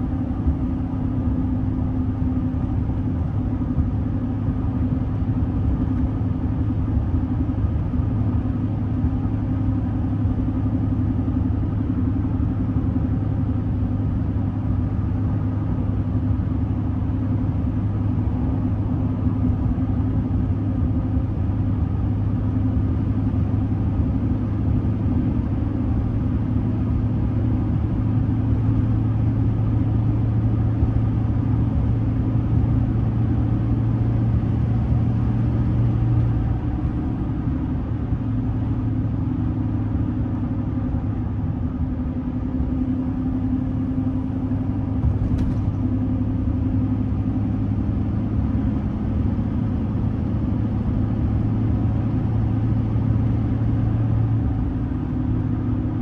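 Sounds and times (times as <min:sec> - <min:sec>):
road noise: 0:00.0 - 0:56.0
truck engine droning: 0:00.0 - 0:56.0.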